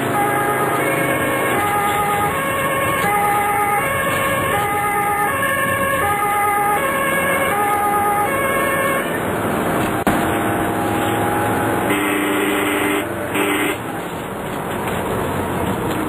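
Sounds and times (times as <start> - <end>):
two-tone siren: 0.0 - 9.2
engine and road noise: 0.0 - 16.0.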